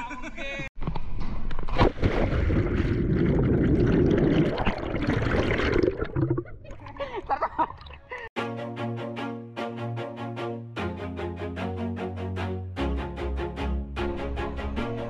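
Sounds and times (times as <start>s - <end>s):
underwater rushing and bubbling: 1.6s - 7.0s
splash into water: 1.7s - 6.4s
music track: 8.4s - 15.0s.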